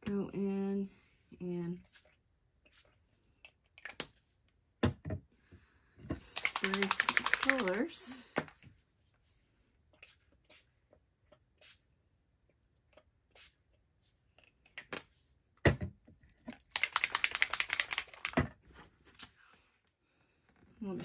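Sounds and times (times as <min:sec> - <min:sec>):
rapid crisp clicking and rattling: 0:06.3 - 0:07.9, 0:16.5 - 0:18.4.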